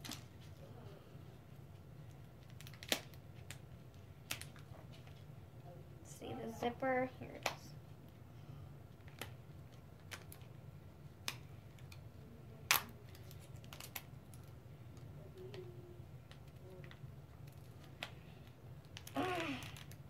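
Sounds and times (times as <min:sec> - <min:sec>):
faint low hum: 0:00.0 - 0:20.0
plastic wrapper clicks and crackles: 0:02.2 - 0:03.6, 0:04.2 - 0:05.2, 0:12.7 - 0:14.6, 0:18.8 - 0:20.0.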